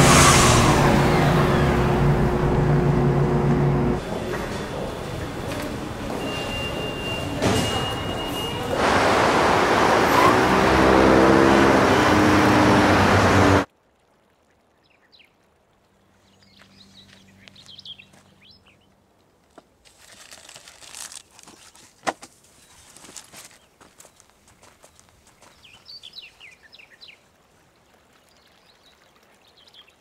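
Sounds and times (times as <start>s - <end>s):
rising motor tones: 0.0s - 7.4s
subway train roaring: 0.0s - 13.7s.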